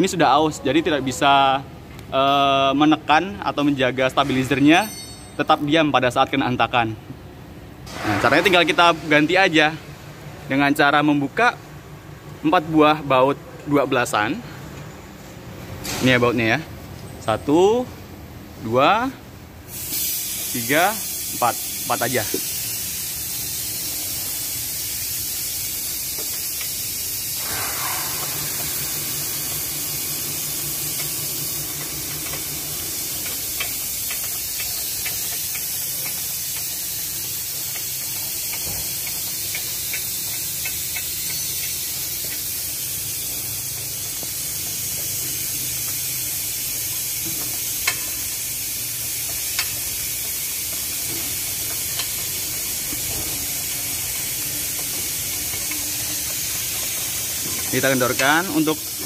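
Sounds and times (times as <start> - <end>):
workshop background hiss: 0.0 - 59.0
tools clicking on metal: 21.2 - 59.0.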